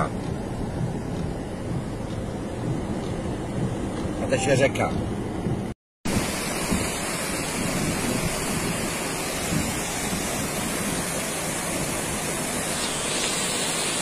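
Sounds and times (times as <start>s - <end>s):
floodwater rushing: 6.1s - 14.0s.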